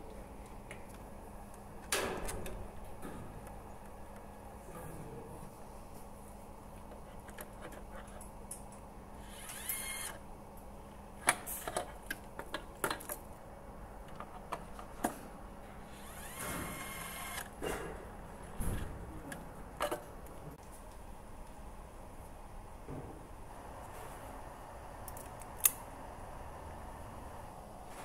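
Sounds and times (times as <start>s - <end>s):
electric screwdriver whirring: 9.2s - 10.2s, 15.9s - 17.5s.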